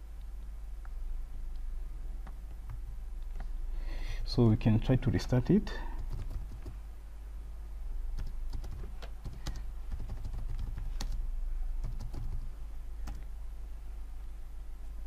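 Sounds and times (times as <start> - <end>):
steady low hum: 0.0 - 15.0
computer keyboard typing: 6.0 - 6.8, 8.2 - 11.2, 11.8 - 13.3.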